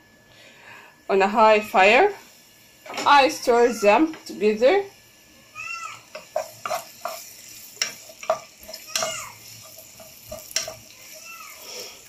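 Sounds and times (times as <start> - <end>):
onions sizzling in oil: 1.0 - 12.0
spoon scraping metal pot: 6.2 - 11.0.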